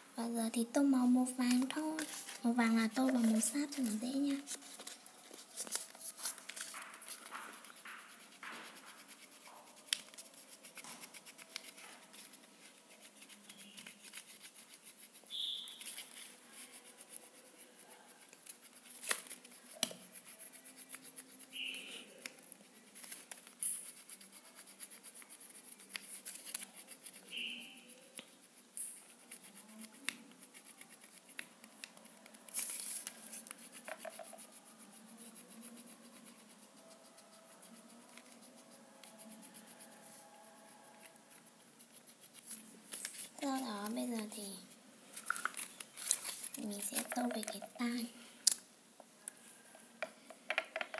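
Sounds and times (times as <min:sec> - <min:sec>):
crayon scratching on paper: 0:00.2 - 0:44.8, 0:46.0 - 0:48.1
paper rustling: 0:01.4 - 0:09.2, 0:29.9 - 0:34.2, 0:42.2 - 0:44.4, 0:45.1 - 0:47.9.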